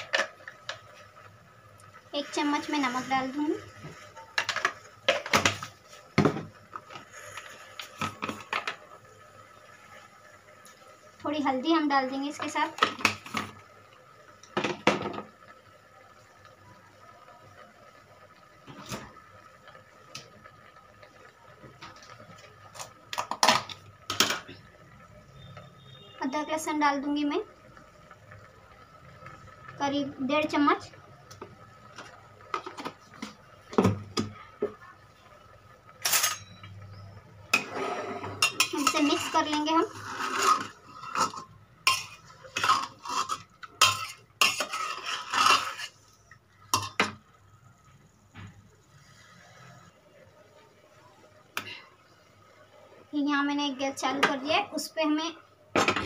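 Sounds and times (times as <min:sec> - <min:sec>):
kitchen utensils clinking: 0:03.9 - 0:06.5, 0:36.0 - 0:36.8, 0:37.5 - 0:46.0, 0:46.7 - 0:47.2.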